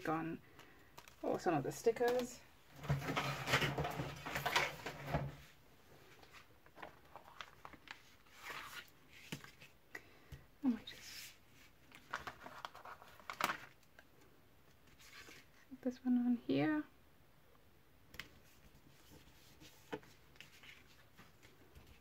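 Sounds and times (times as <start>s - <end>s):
paper rustling and sliding: 6.1s - 9.8s, 14.9s - 15.6s, 18.4s - 22.0s.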